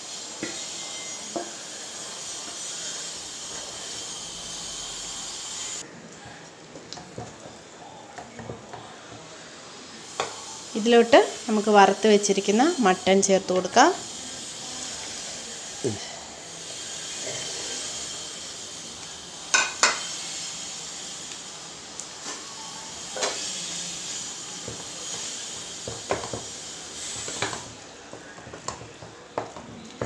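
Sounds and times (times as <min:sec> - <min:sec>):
gravy sizzling in a pan: 0:00.0 - 0:05.8, 0:07.3 - 0:30.0
utensils knocking against pan: 0:19.5 - 0:20.0, 0:25.8 - 0:26.5.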